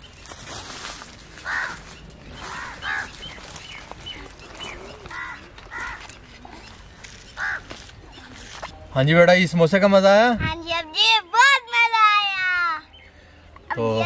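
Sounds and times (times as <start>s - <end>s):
harsh bird calls: 0.0s - 14.0s
faint bird chirping: 1.5s - 9.6s.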